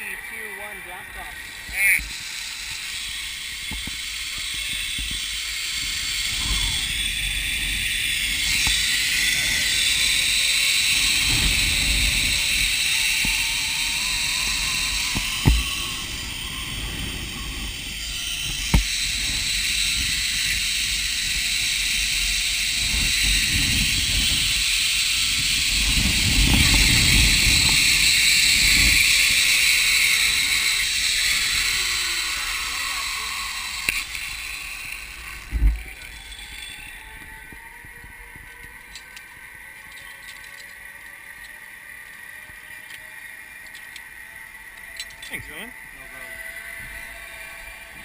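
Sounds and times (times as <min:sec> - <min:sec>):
zip-line pulleys whirring on cable: 0:00.0 - 0:48.0
wind buffeting microphone: 0:00.6 - 0:38.8.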